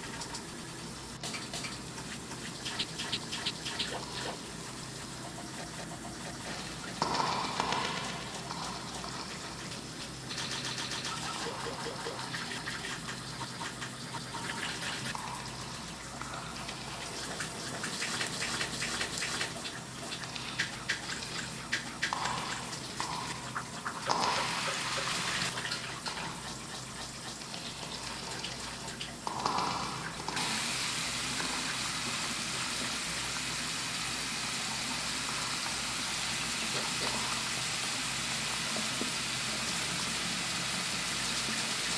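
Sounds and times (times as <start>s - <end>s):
shower spray running: 0.0s - 41.9s.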